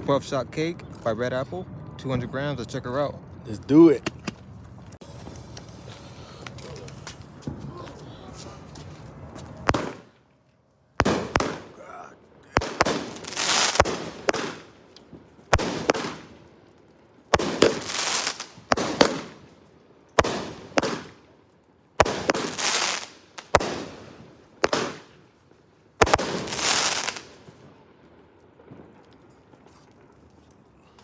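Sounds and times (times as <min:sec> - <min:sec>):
firework hiss: 0:05.0 - 0:07.4, 0:12.5 - 0:14.8, 0:17.3 - 0:19.4, 0:22.0 - 0:25.1, 0:26.0 - 0:27.4.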